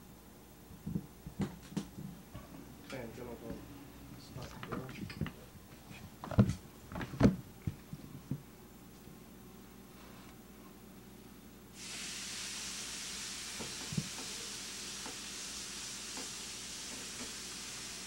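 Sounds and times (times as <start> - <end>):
steak sizzling on grill: 11.8 - 18.0.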